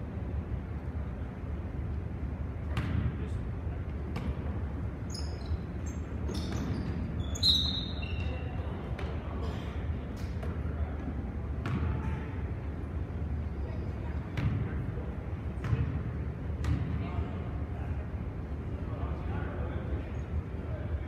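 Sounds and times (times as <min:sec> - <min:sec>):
faint voices in echoing hall: 0:00.0 - 0:21.0
basketball bouncing: 0:02.7 - 0:03.1, 0:04.1 - 0:04.5, 0:11.6 - 0:12.2, 0:14.4 - 0:14.7, 0:15.6 - 0:16.0, 0:16.6 - 0:17.0
sneakers squeaking: 0:04.0 - 0:10.8, 0:11.6 - 0:12.4.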